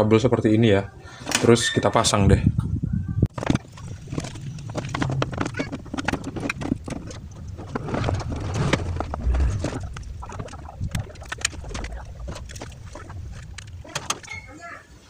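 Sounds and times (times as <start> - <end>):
wires rustling: 3.4 - 14.6
dull low thump: 7.8 - 13.9.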